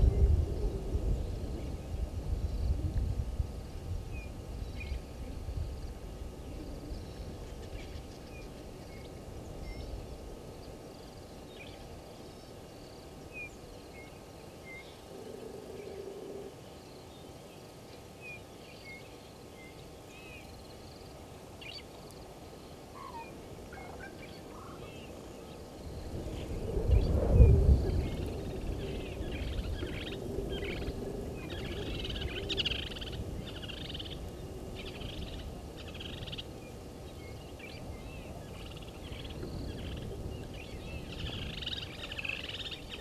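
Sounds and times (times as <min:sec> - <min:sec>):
low hum: 0:00.0 - 0:17.1.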